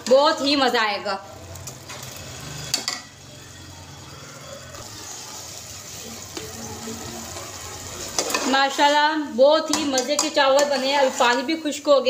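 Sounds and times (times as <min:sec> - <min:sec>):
rice simmering with hiss and bubbling: 0:00.4 - 0:09.3
metal spatula clicking on pot: 0:09.7 - 0:11.4.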